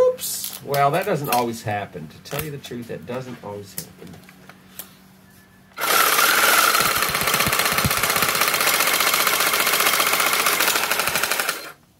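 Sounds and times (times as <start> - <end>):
reciprocating saw running: 5.8 - 11.8.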